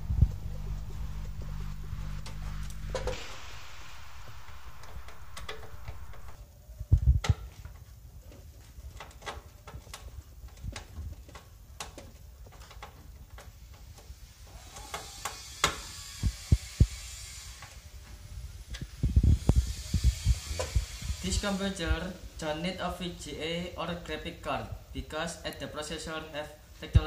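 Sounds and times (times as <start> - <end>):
low hum: 0.0 - 6.4.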